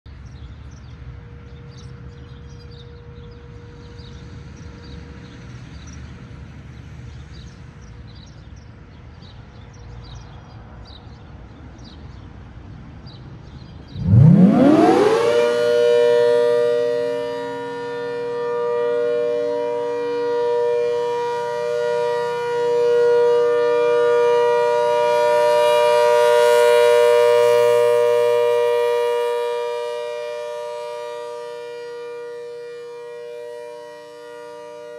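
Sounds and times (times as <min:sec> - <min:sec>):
rotating warning siren: 0:13.7 - 0:34.9.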